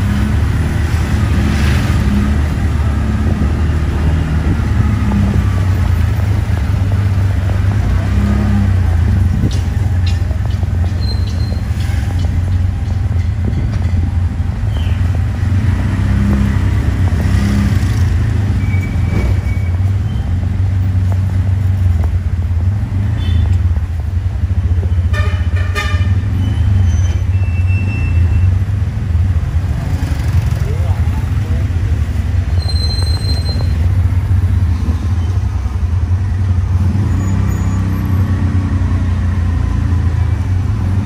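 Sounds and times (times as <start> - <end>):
auto-rickshaw engine drone: 0.0 - 41.0
horn toots: 25.0 - 28.5.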